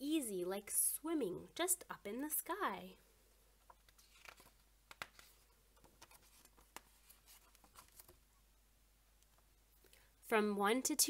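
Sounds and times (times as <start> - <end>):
book pages turning: 3.6 - 8.3.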